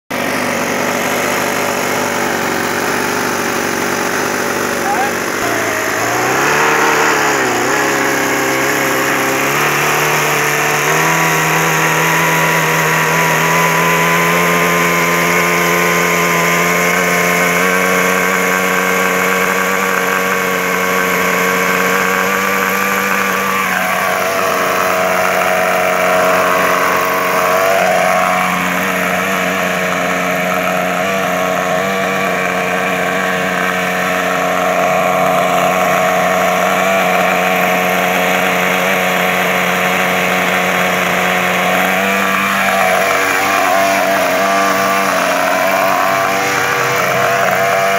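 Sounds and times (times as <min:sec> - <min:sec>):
model helicopter engine drone: 0:00.1 - 0:47.9
rotor spinning up: 0:00.1 - 0:47.9.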